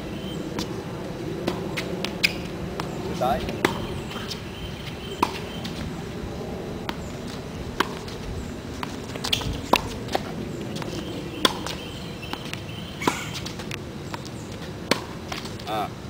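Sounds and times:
low background noise: 0.0 - 16.0
tennis ball bouncing on hard court: 1.4 - 5.8, 6.8 - 8.2, 8.8 - 15.6
racquets striking tennis ball: 1.4 - 5.9, 6.8 - 15.7.

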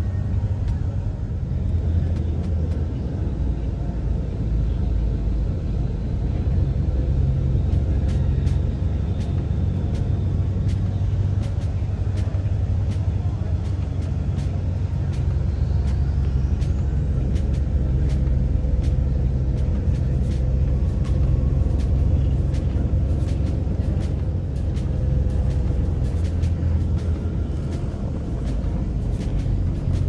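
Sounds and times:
bus engine rumble: 0.0 - 30.0.

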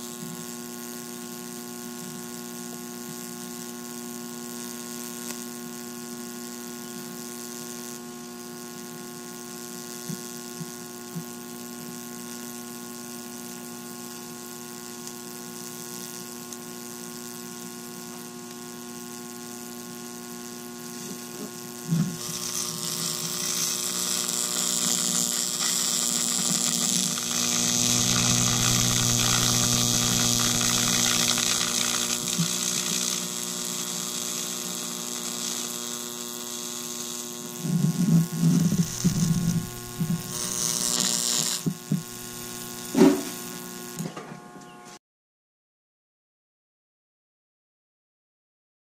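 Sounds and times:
high-voltage supply buzzing: 0.0 - 44.0
sizzling electric arc: 0.0 - 44.0
faint electric snaps: 5.0 - 5.6, 14.0 - 16.8, 20.8 - 44.1
sharp electric crack: 22.1 - 37.6, 38.4 - 44.0.

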